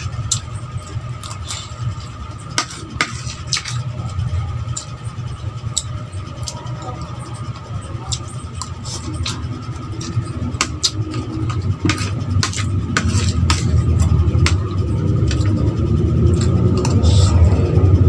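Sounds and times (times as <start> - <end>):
steady low rumble: 0.0 - 18.0
chewing clicks: 0.2 - 2.0, 5.6 - 7.1, 8.0 - 11.6
metal spoon scraping a plate: 1.2 - 4.1, 8.1 - 15.6.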